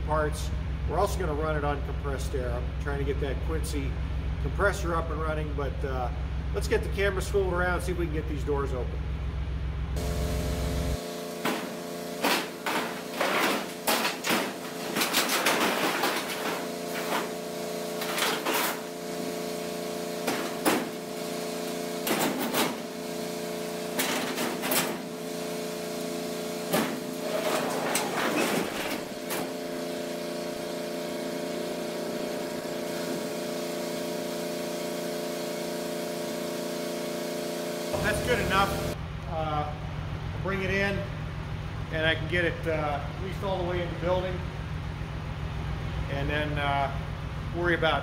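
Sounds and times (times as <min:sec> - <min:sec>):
steady multi-tone hum: 0:00.0 - 0:48.0
metal doors rattling and scraping: 0:11.6 - 0:17.4, 0:18.0 - 0:18.8, 0:24.0 - 0:25.1, 0:26.7 - 0:29.5.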